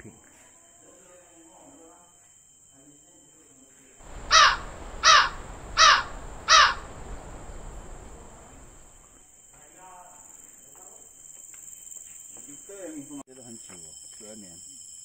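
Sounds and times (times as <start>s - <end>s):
crow cawing: 4.0s - 9.0s.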